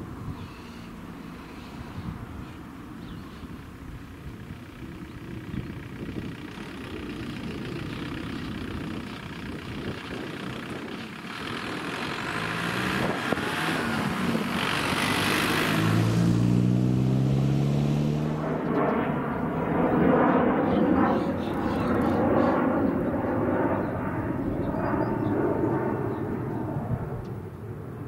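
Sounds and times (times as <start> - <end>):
car engine accelerating: 10.5 - 19.3.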